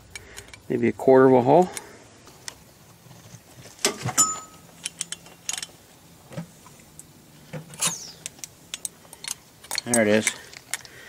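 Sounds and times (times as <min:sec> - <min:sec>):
metallic clinks and knocks: 0:03.8 - 0:05.8, 0:07.7 - 0:11.0.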